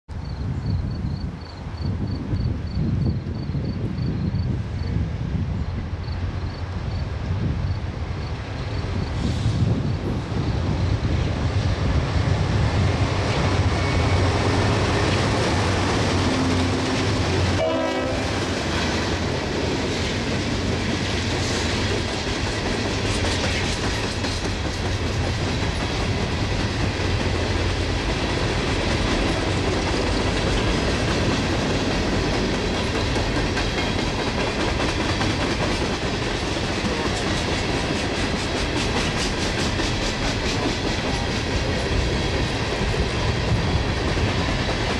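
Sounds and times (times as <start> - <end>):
diesel locomotive engine drone: 0.1 - 44.9
freight cars rumbling: 1.7 - 44.9
wheels clacking over rail joints: 13.0 - 44.9.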